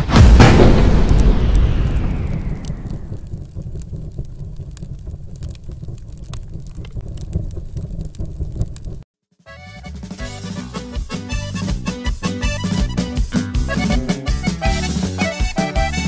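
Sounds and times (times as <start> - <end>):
low rumble with crackles: 0.0 - 9.1
music: 9.4 - 16.0.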